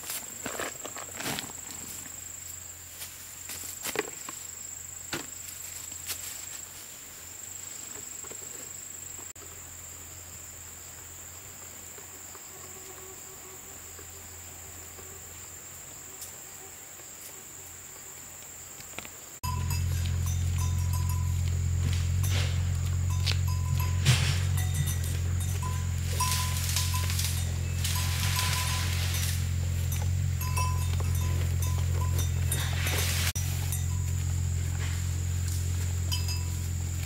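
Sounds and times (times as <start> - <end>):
insects droning: 0.0 - 37.0.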